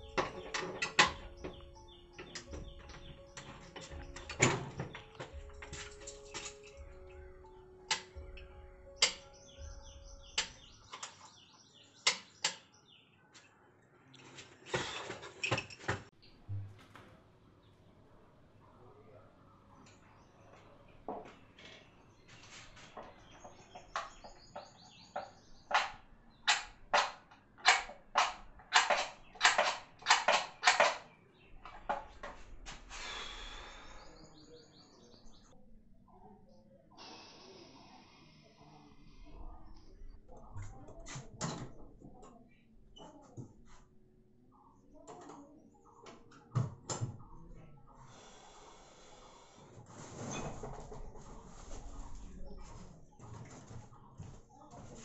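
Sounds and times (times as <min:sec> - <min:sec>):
high bird chirps: 0:06.3 - 0:13.0
person breathing heavily: 0:32.9 - 0:34.4, 0:48.1 - 0:49.7.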